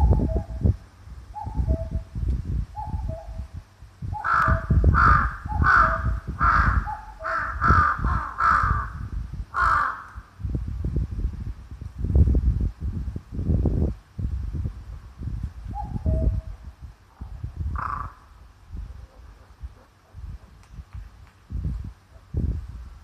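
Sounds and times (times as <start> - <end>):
wind rumble on microphone: 0.0 - 23.0
cuckoo calling: 1.4 - 2.1, 2.8 - 3.5
crow cawing: 4.2 - 10.2, 17.8 - 18.3.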